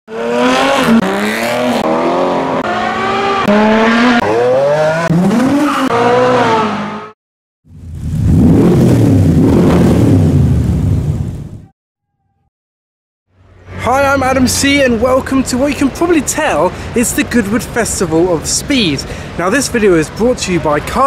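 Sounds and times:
car engines revving: 0:00.1 - 0:07.2, 0:07.9 - 0:11.1.

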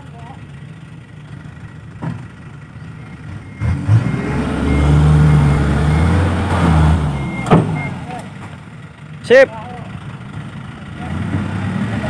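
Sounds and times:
dump truck engine revving: 0:00.0 - 0:12.0
reversing beeper chirping: 0:02.8 - 0:08.1.

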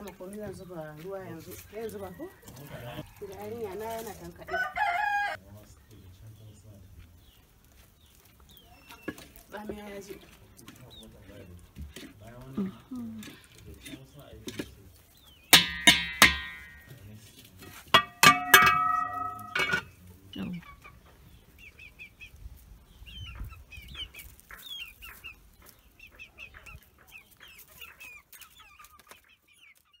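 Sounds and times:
chickens clucking: 0:00.0 - 0:30.0
spoon striking metal bowl: 0:15.6 - 0:17.0, 0:17.9 - 0:19.9.

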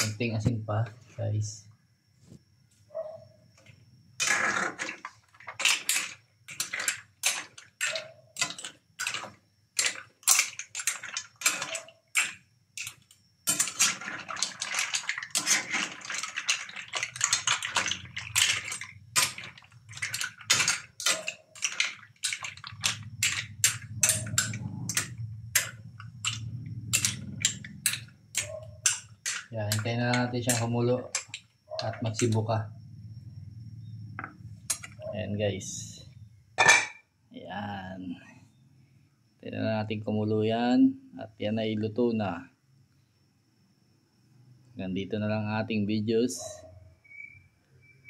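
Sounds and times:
metal ladle stirring: 0:04.2 - 0:32.4
shells clattering in a steel pan: 0:04.2 - 0:32.4.

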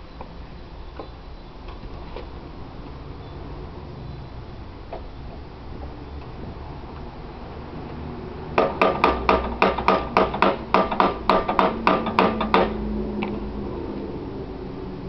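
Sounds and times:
hammer tapping on metal: 0:08.6 - 0:12.8.

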